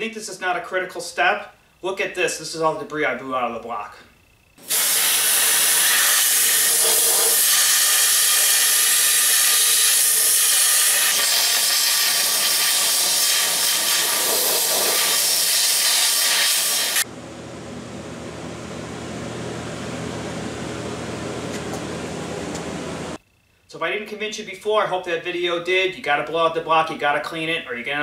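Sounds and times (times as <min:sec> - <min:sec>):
air blow gun hissing: 0:04.6 - 0:17.1.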